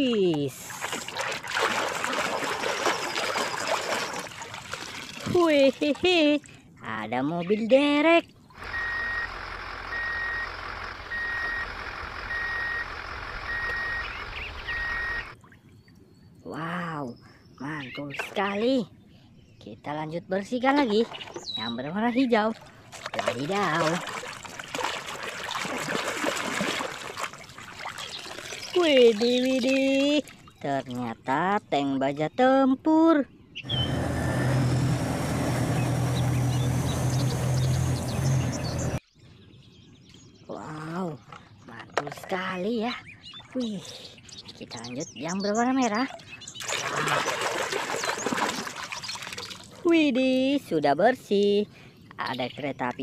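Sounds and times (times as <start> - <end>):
diesel engine running: 8.6 - 15.4, 33.6 - 39.0
truck reversing alarm beeping: 8.6 - 15.4, 33.6 - 39.0.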